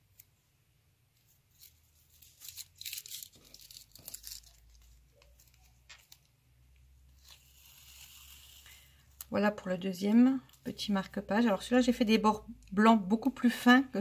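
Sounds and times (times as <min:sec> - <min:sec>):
paper strips rustling: 0:01.1 - 0:06.5
tape peeling off paper: 0:01.5 - 0:06.3, 0:07.2 - 0:08.8.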